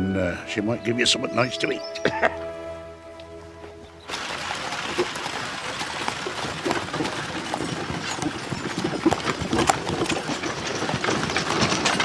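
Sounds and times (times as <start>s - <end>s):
hooves clip-clopping on dirt: 3.6s - 12.0s
cart wheels rattling: 4.1s - 12.0s.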